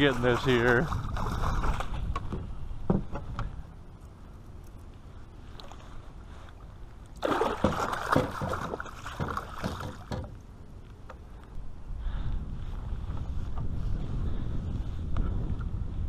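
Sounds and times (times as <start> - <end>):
fish thrashing and splashing: 7.2 - 10.2.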